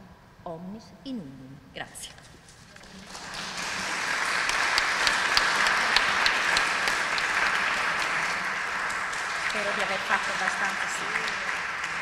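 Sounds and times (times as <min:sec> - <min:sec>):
audience applauding: 0:02.8 - 0:12.0
sharp individual claps: 0:02.8 - 0:12.0.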